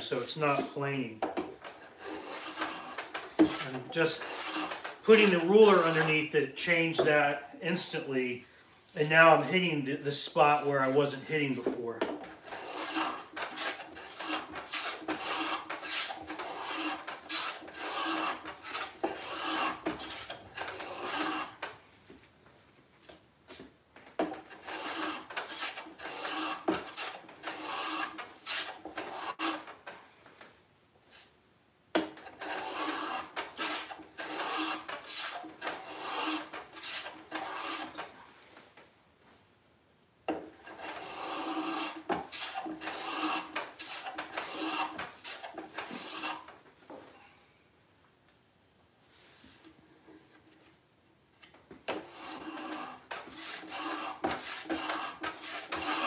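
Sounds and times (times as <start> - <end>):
hand plane rasping on wood: 1.7 - 7.1, 12.2 - 21.7, 24.2 - 29.7, 32.2 - 38.1, 40.6 - 46.5, 51.9 - 56.0.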